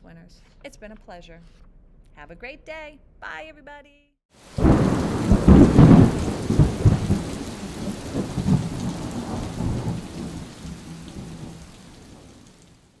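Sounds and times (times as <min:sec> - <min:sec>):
steady rain: 0:04.3 - 0:13.0
thunder rumbling: 0:04.4 - 0:13.0.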